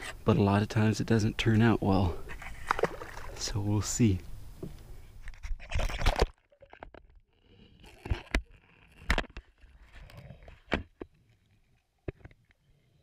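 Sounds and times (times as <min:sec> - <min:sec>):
camera splashing into water: 0:02.6 - 0:03.4, 0:05.7 - 0:06.8.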